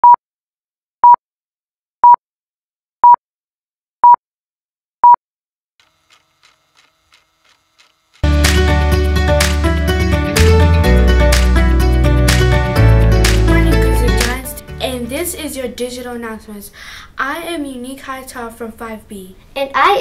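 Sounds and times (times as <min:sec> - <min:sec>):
music: 0:08.2 - 0:15.6.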